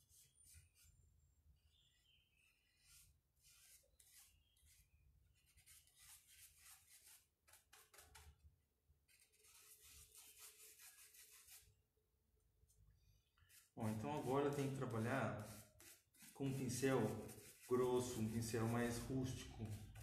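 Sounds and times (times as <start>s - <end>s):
paintbrush scratching on rough wood: 2.6s - 4.8s, 5.4s - 8.3s, 9.1s - 11.7s, 13.4s - 20.0s.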